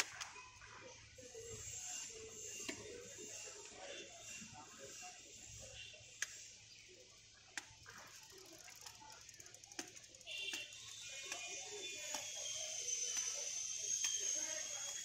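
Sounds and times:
high-pitched drone: 10.8s - 15.0s.

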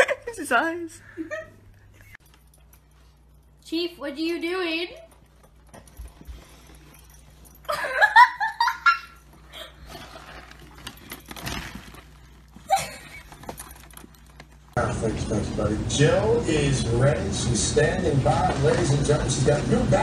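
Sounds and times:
dog rummaging in trash can: 9.8s - 14.4s
person laughing: 12.6s - 13.3s.

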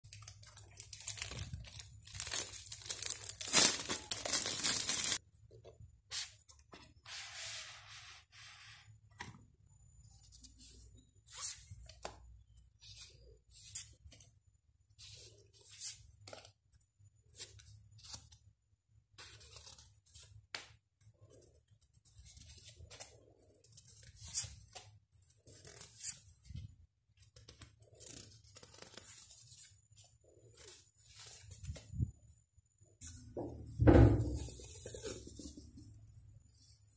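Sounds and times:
plastic wrapping crinkling and tearing: 0.1s - 5.2s.

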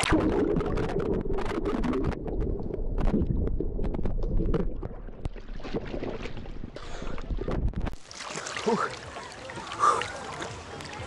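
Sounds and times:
bubbling with crackling clicks: 0.0s - 8.0s
underwater rumble: 0.0s - 8.1s
water splashing: 0.0s - 11.0s.

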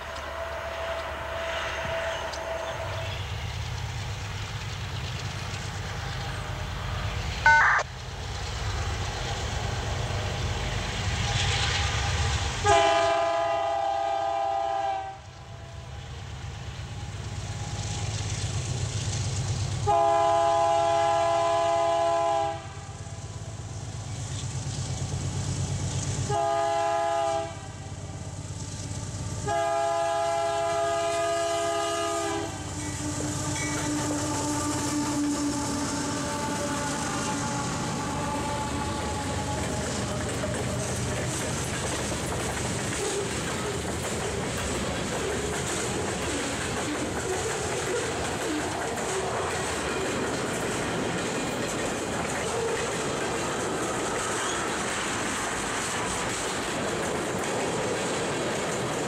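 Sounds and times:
locomotive air horn blasts: 0.0s - 3.0s, 12.6s - 15.2s, 19.8s - 22.9s, 26.3s - 27.8s, 29.4s - 39.9s
diesel locomotive rumble: 0.0s - 59.0s.

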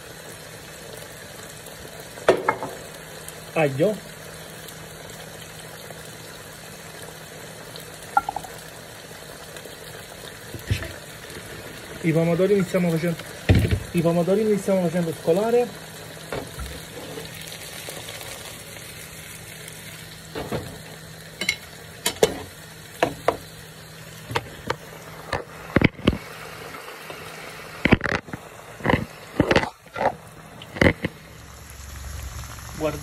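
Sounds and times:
garlic sizzling in oil: 0.0s - 33.0s
pans knocking and bumping: 2.3s - 2.8s, 8.2s - 8.6s.

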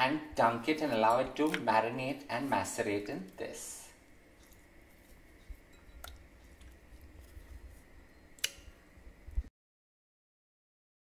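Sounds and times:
peppers being torn by hand: 8.4s - 8.7s.

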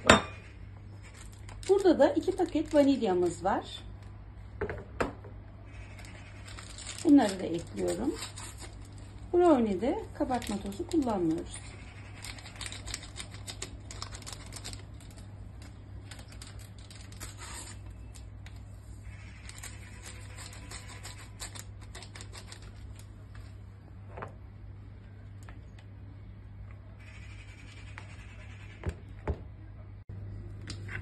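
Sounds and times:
paper sachets tearing and crinkling: 1.0s - 3.8s, 5.9s - 23.6s.

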